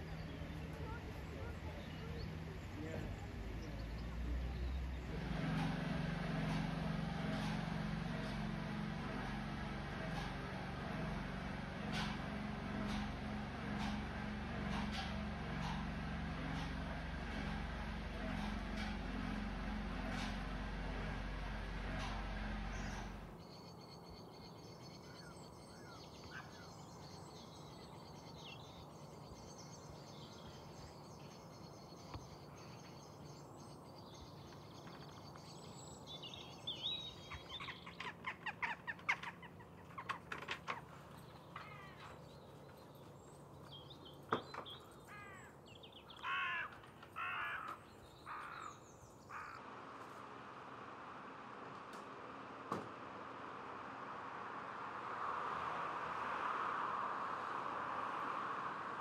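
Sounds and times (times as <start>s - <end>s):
small birds chirping: 0.0s - 5.2s, 22.7s - 49.6s
crow cawing: 45.1s - 45.5s, 46.2s - 49.6s.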